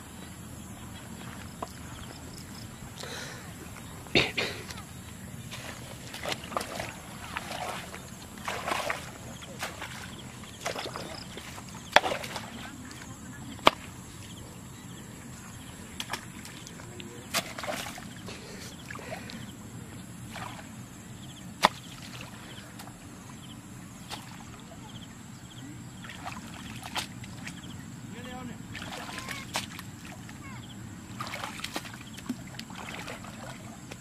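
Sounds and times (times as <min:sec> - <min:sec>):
steady low hum: 0:00.0 - 0:34.0
water splashing: 0:00.8 - 0:14.5, 0:15.4 - 0:19.5, 0:20.2 - 0:23.0, 0:25.9 - 0:34.0
hoe chopping into mud: 0:06.1 - 0:10.0, 0:11.9 - 0:12.6, 0:13.6 - 0:13.9, 0:17.3 - 0:18.0, 0:21.6 - 0:22.2.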